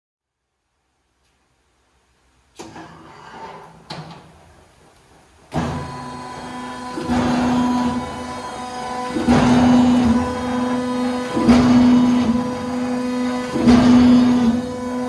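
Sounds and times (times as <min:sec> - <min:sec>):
cutting machine humming: 0:05.6 - 0:15.0.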